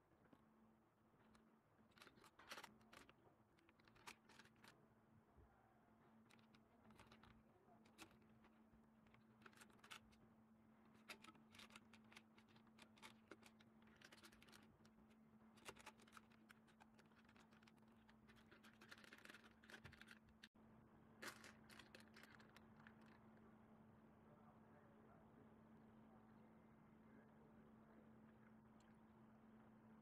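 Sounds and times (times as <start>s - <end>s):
low steady hum: 0.0s - 30.0s
faint scratches and clicks: 1.2s - 4.8s, 6.0s - 20.6s, 21.2s - 23.4s.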